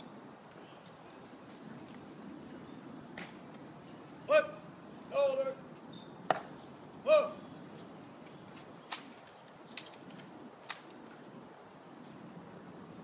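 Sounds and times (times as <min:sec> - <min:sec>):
sharp clicks of marching footsteps: 0:08.2 - 0:11.3.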